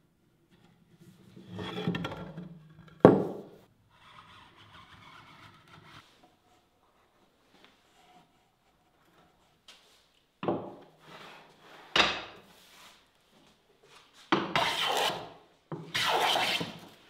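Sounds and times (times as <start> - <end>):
metal tool scraping wood: 1.2 - 6.2, 14.6 - 15.2, 15.9 - 16.8.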